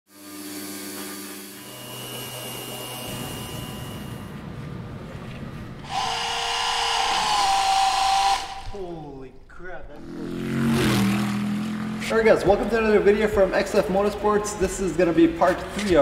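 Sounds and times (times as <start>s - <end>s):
milling machine whine and hum: 0.1s - 8.8s
pressure washer spraying water: 5.8s - 8.8s.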